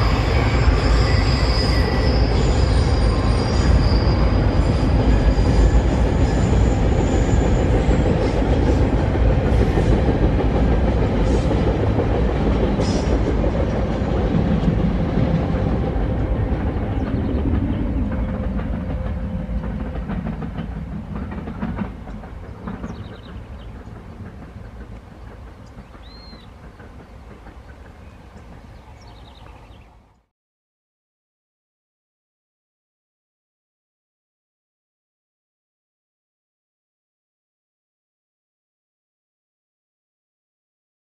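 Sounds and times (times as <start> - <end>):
train wheels rumbling on rail: 0.0 - 30.3.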